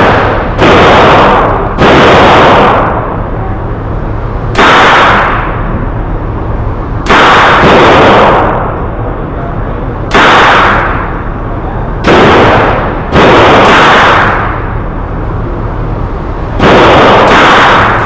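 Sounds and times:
rifle shots with ringing echo: 0:00.0 - 0:03.3, 0:04.4 - 0:05.8, 0:07.0 - 0:08.8, 0:10.0 - 0:11.3, 0:12.0 - 0:14.9, 0:16.6 - 0:18.0.

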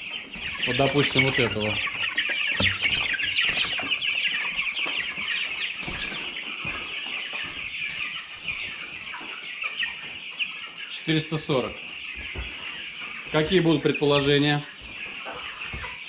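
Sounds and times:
chicks peeping: 0:00.0 - 0:16.0.

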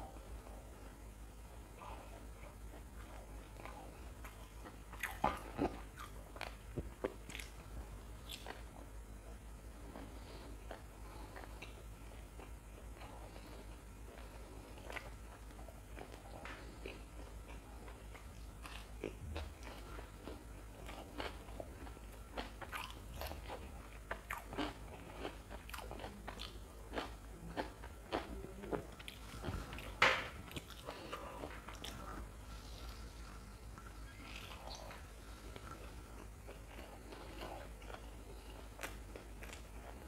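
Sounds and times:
crunching fried snack: 0:18.6 - 0:29.2.

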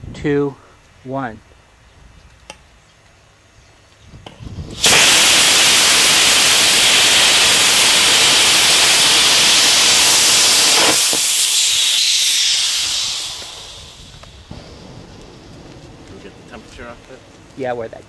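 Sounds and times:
rocket motor ignition crackles: 0:04.2 - 0:18.0
rocket motor roaring: 0:04.7 - 0:17.4.

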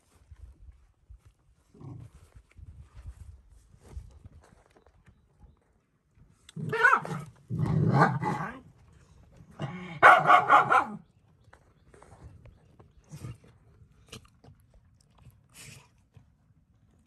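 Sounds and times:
dog barking and growling: 0:06.6 - 0:08.7, 0:09.6 - 0:11.0.

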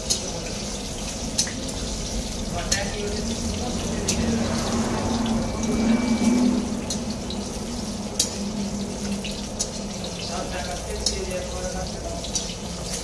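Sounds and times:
eggs sizzling in hot oil: 0:00.0 - 0:13.0
low hum: 0:02.0 - 0:10.3.

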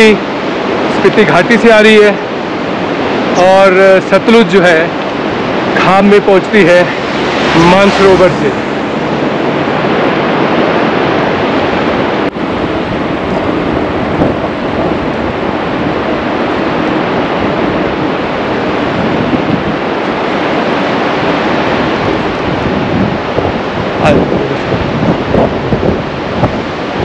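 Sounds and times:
fast river water rushing: 0:00.0 - 0:27.0
wind on microphone: 0:05.0 - 0:27.0.

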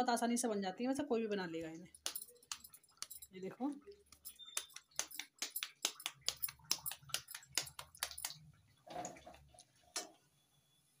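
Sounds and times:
oil crackling and popping: 0:02.0 - 0:10.2.

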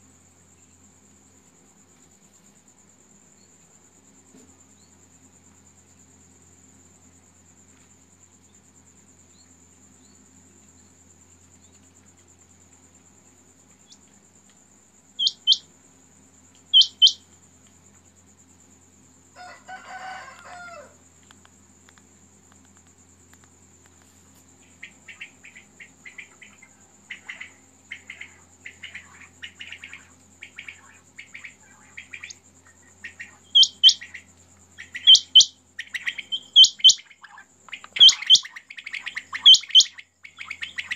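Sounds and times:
cricket trill: 0:00.0 - 0:40.9
quail calling: 0:15.2 - 0:15.6, 0:16.7 - 0:17.2, 0:33.0 - 0:34.2, 0:34.8 - 0:40.9.

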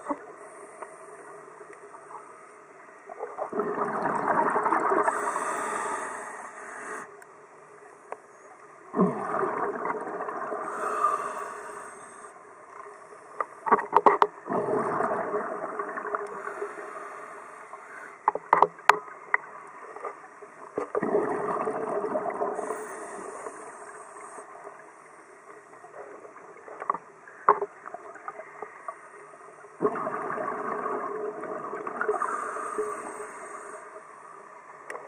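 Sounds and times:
exhaled bubbles rushing: 0:03.2 - 0:05.2, 0:08.9 - 0:10.8, 0:14.4 - 0:16.5, 0:20.8 - 0:22.7, 0:29.8 - 0:32.6
regulator inhale hiss: 0:05.0 - 0:07.2, 0:10.6 - 0:12.4, 0:16.3 - 0:18.3, 0:22.6 - 0:24.5, 0:32.1 - 0:34.1
sharp clicks and knocks: 0:18.2 - 0:19.0.

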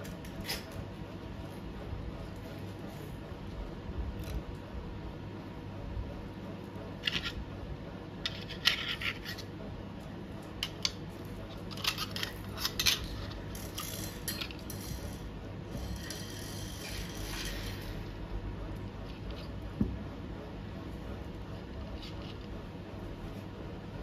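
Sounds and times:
handling clicks and scrapes: 0:08.2 - 0:09.6, 0:10.4 - 0:18.1.

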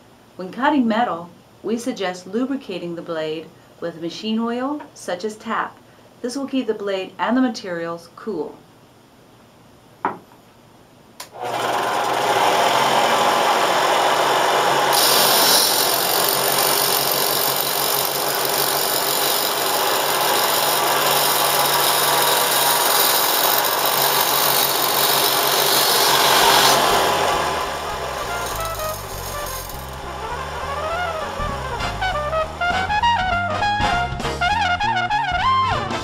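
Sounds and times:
band saw running: 0:11.4 - 0:32.4
blade cutting metal tube hiss: 0:14.9 - 0:30.1.

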